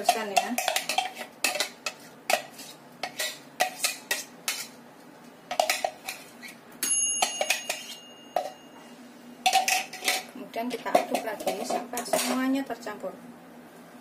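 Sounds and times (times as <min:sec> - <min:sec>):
kitchenware knocks and clinks: 0:06.8 - 0:08.8, 0:09.4 - 0:10.3
ringing clink: 0:06.8 - 0:08.8.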